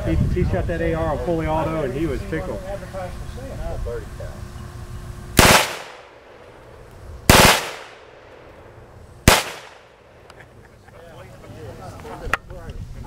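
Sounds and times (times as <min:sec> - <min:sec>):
automatic gunfire bursts: 0:05.4 - 0:06.2, 0:07.3 - 0:08.2, 0:09.2 - 0:10.0.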